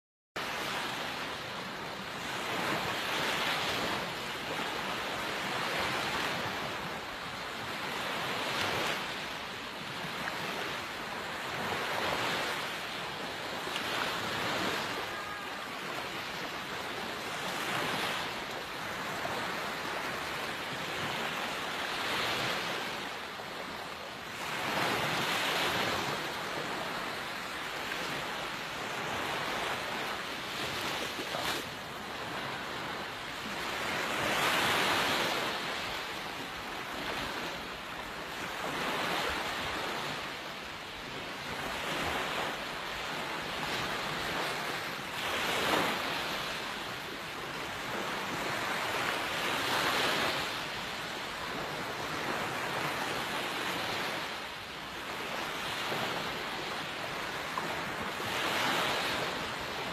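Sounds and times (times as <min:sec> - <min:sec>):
small waves on sandy beach: 0:00.4 - 0:59.9.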